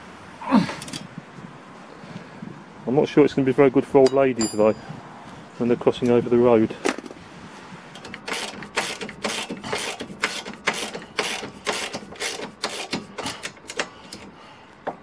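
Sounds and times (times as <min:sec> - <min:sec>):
ratchet wrench clicking: 0:08.0 - 0:14.3.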